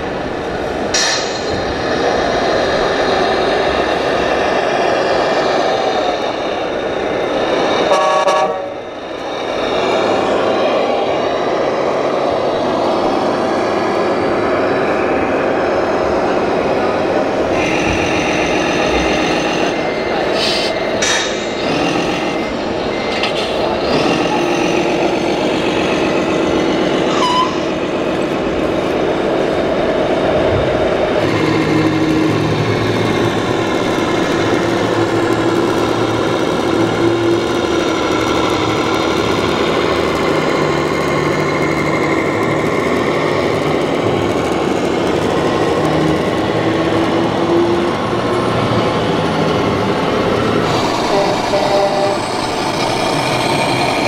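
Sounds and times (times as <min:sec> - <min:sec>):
diesel truck engine sounds from loudspeakers: 0:00.0 - 0:54.0
hall chatter: 0:15.5 - 0:54.0.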